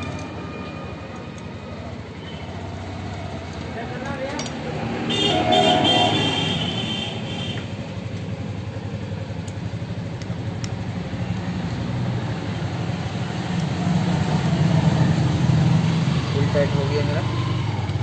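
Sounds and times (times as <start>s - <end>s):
engine idling: 5.2s - 15.2s.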